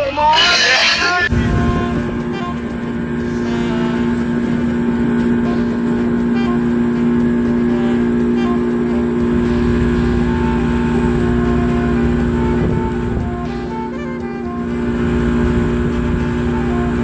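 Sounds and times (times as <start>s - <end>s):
boat engine humming: 0.0s - 17.0s.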